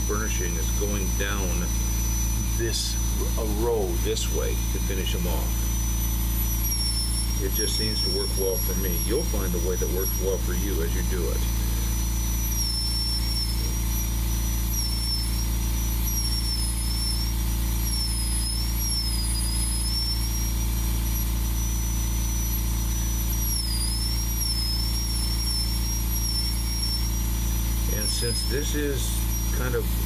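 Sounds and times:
rotary carving tool whining: 0.0 - 30.0.

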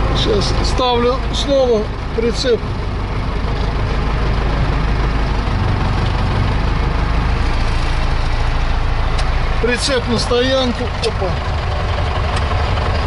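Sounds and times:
tractor engine running: 0.0 - 13.0.

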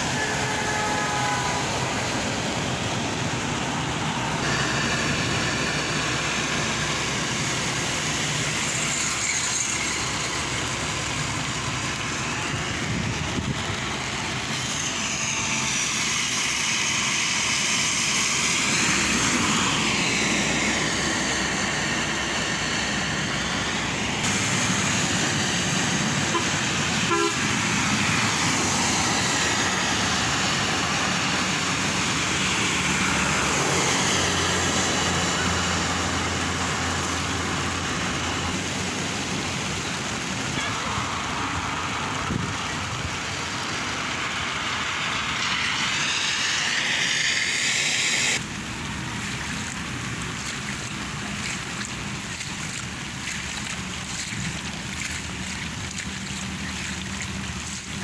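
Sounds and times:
steady rain: 0.0 - 58.0
tyres swishing through water: 0.0 - 58.0
short horn toot: 26.3 - 27.5.

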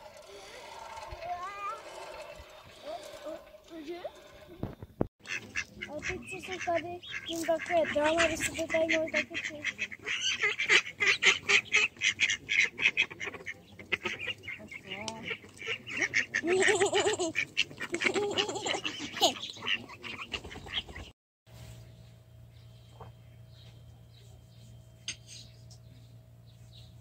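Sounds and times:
ducks quacking: 0.1 - 21.1.

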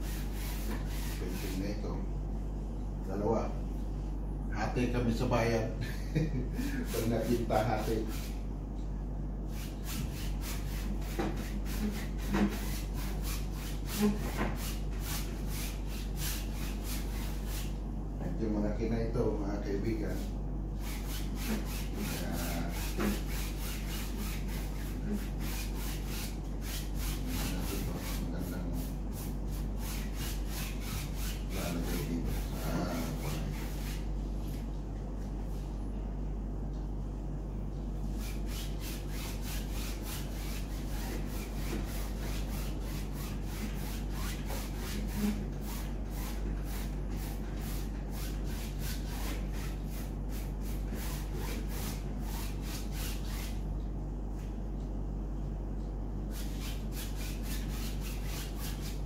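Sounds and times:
paintbrush scrubbing canvas: 0.0 - 1.8, 6.6 - 8.4, 9.5 - 17.8, 20.0 - 34.7, 38.0 - 53.6, 56.3 - 59.0
steady low hum: 0.0 - 59.0.

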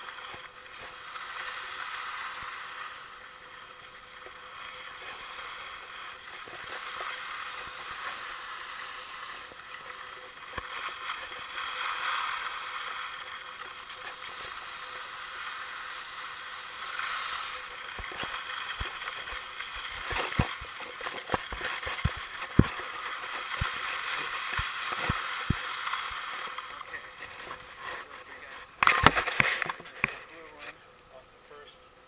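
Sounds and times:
sliding over snow hiss: 0.0 - 30.6.

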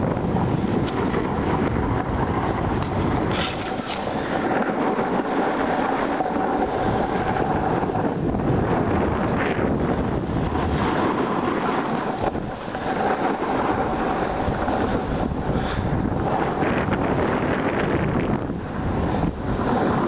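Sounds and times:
wind buffeting microphone: 0.0 - 20.0
skis hissing over snow: 3.2 - 8.1, 9.2 - 17.9, 18.9 - 20.0.

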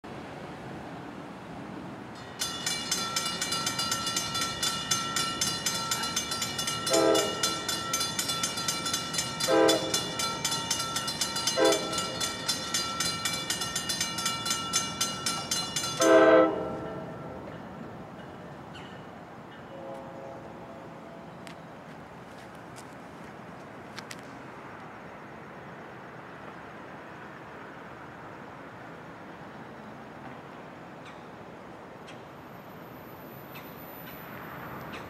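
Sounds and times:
crossing warning bell ringing: 2.2 - 21.5, 32.1 - 35.0
train horn blasts: 6.7 - 7.8, 9.4 - 10.4, 11.4 - 12.4, 16.0 - 17.5, 19.6 - 21.3.

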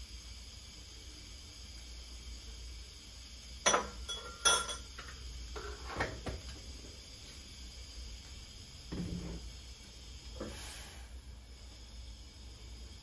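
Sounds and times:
dishes and cutlery clinking: 3.7 - 4.9.

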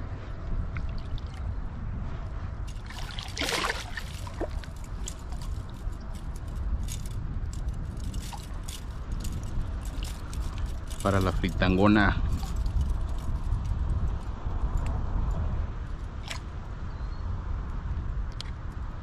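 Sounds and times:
water sloshing and splashing: 2.7 - 11.6
handling clicks and rattles: 2.7 - 14.9.

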